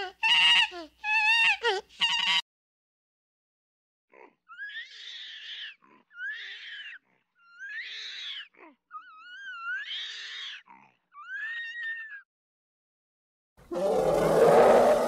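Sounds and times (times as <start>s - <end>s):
orangutan high breathy calls: 13.7s - 15.0s
orangutan low grunting: 13.7s - 15.0s.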